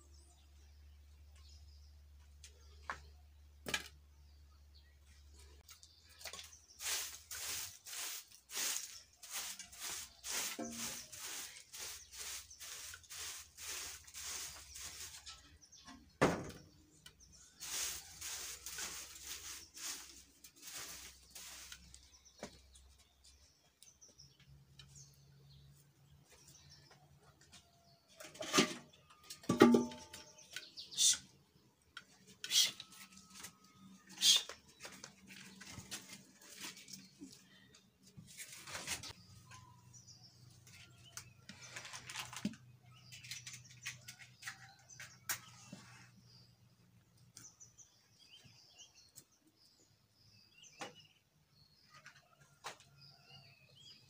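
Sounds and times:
grass and sticks rustling and crackling: 5.6 - 15.7, 17.4 - 22.7, 34.2 - 37.5, 40.7 - 45.5.

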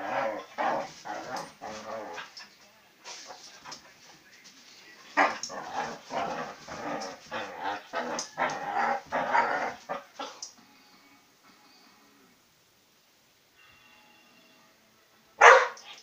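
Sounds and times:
dog growling: 0.0 - 2.5, 5.2 - 10.4.

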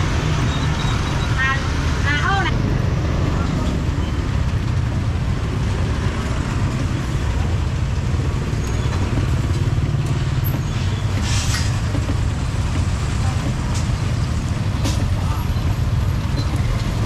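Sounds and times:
traffic engines rumbling: 0.0 - 17.0
short hiss: 11.2 - 11.8.

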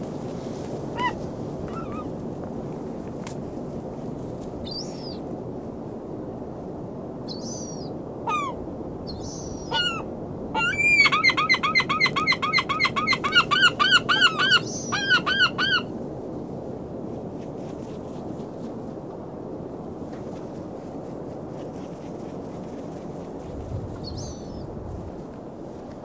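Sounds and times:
gulls calling: 9.2 - 15.9.

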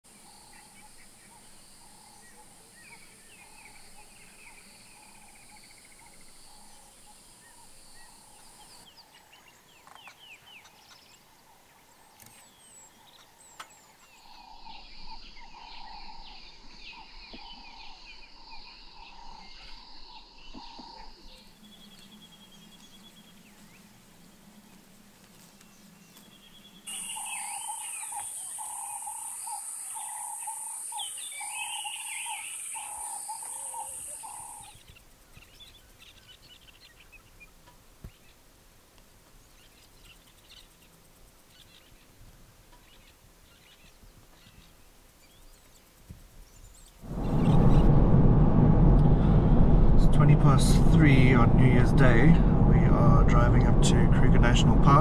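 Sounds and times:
birds chirping and calling: 25.6 - 37.4.

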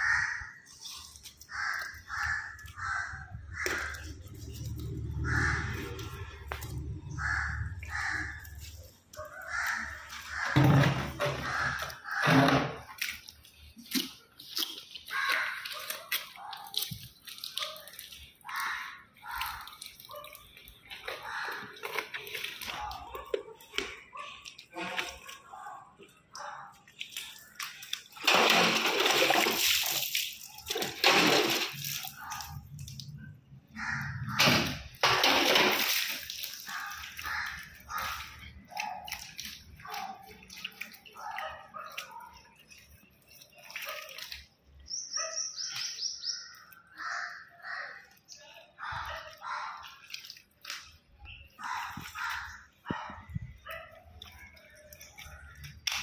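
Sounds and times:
crows cawing: 0.0 - 12.9, 15.0 - 15.8, 18.4 - 19.8, 21.0 - 22.4, 33.7 - 35.0, 36.4 - 38.5, 46.6 - 49.6.

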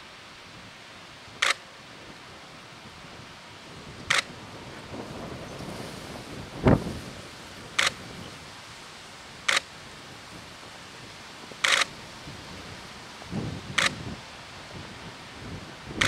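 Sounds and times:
faint hiss: 0.0 - 16.0
camera shutter clicks: 11.6 - 11.9.

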